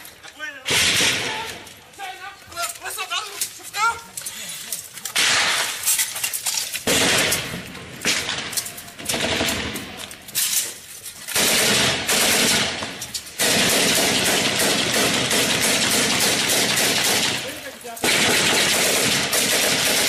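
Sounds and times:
automatic gunfire: 0.7s - 1.6s, 5.2s - 5.8s, 6.8s - 10.0s, 11.3s - 20.0s.

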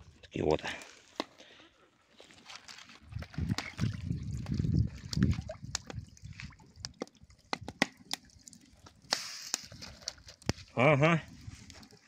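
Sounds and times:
water sloshing: 2.1s - 10.6s.

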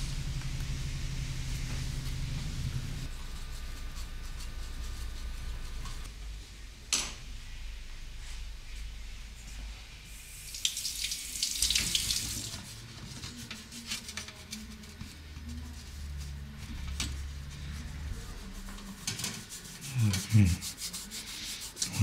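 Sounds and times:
steady low hum: 0.0s - 10.6s, 12.9s - 22.0s
water running from a tap: 10.1s - 12.9s.

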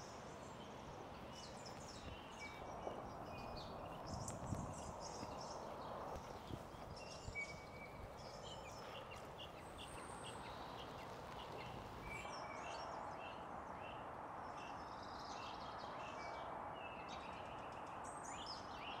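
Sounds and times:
small birds chirping: 0.0s - 13.0s
faint outdoor hiss: 0.0s - 19.0s.

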